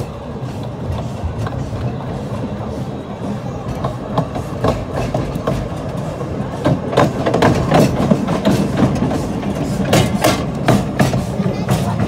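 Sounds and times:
railway carriage rumble: 0.0 - 12.0
wheels and couplings clicking: 3.6 - 12.0.

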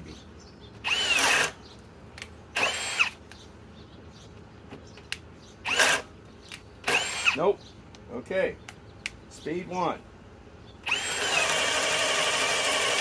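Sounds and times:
power drill whining: 0.8 - 1.6, 2.6 - 3.2, 5.6 - 6.1, 6.8 - 7.4, 10.8 - 13.0
spade bit boring into wood: 0.8 - 1.6, 2.6 - 3.1, 5.7 - 6.1, 6.9 - 7.4, 10.8 - 13.0.

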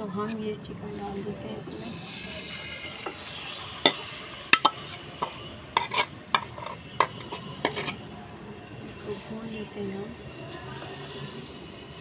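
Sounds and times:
chicken sizzling in hot oil: 1.6 - 8.1
metal spoon scraping a plate: 3.0 - 8.1
spoon clinking on plate and pan: 3.1 - 8.0.

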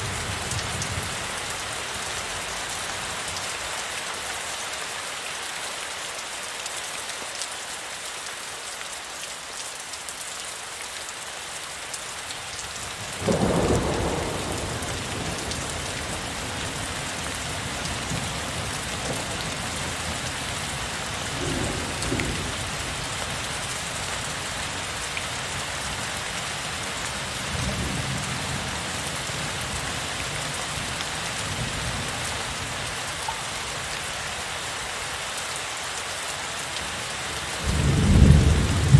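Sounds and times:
heavy rain: 0.0 - 38.9
low thunder rumbling: 13.2 - 16.9, 21.3 - 22.9.

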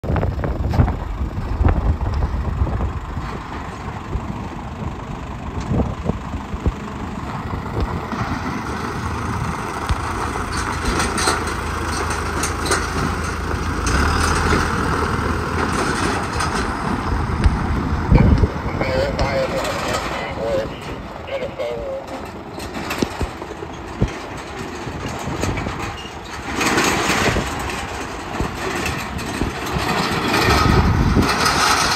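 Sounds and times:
truck engine idling: 0.0 - 31.9.

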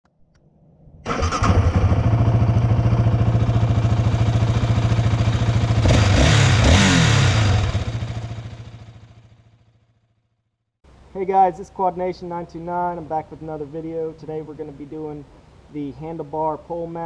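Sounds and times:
atv engine running and revving: 1.4 - 9.2.

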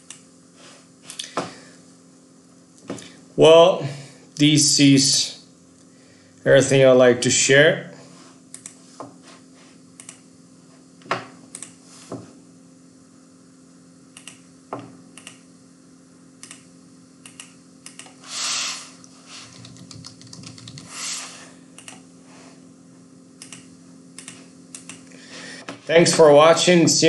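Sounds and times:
faint steady hum: 0.0 - 27.0
computer mouse clicks: 8.5 - 8.8, 10.0 - 10.2, 11.5 - 11.8, 14.2 - 14.4, 15.2 - 15.4, 16.4 - 16.6, 17.2 - 18.2, 19.5 - 21.0, 21.8 - 22.0, 23.4 - 25.0
keyboard keystrokes: 19.5 - 20.9.

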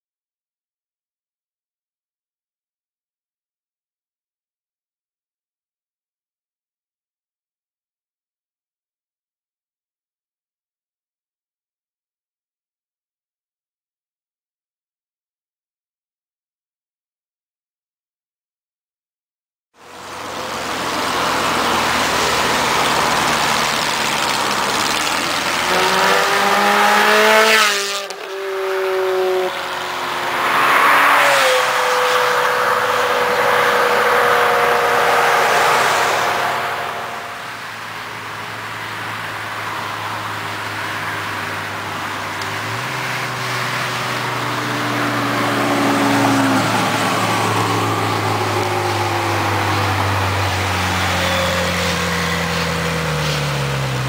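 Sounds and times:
car passing by at speed: 19.8 - 54.0
engine and road noise: 19.8 - 54.0
sports car accelerating: 19.8 - 54.0.

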